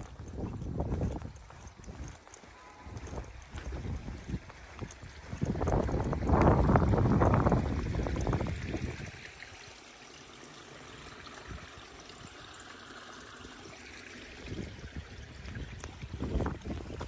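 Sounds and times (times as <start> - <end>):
footsteps on dirt path: 0.0 - 9.0
stream trickling: 0.0 - 17.0.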